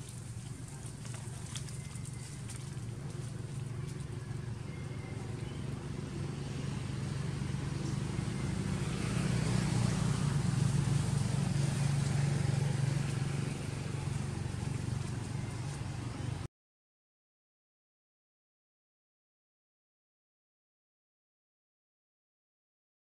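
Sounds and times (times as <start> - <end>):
low motor engine hum: 0.0 - 16.5.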